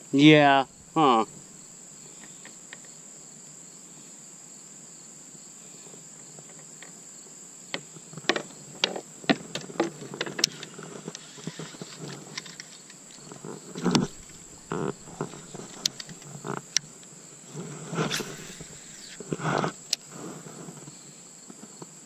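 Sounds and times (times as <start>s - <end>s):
insects trilling: 0.0s - 22.0s
fishing gear clicks and knocks: 11.9s - 16.5s.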